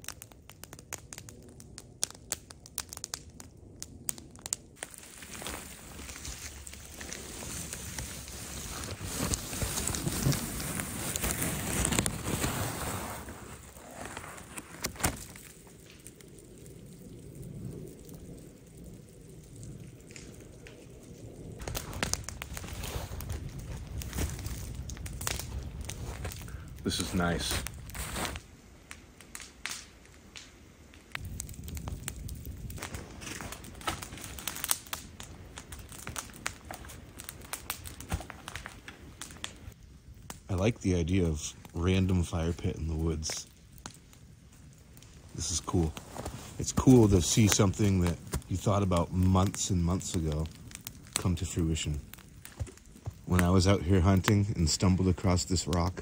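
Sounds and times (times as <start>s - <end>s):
campfire crackling and popping: 0.0s - 56.0s
wood laid onto fire: 4.4s - 16.2s, 21.6s - 40.4s
faint steady hiss: 4.6s - 56.0s
hand scraping snow off tarp: 5.1s - 15.3s, 27.0s - 28.4s.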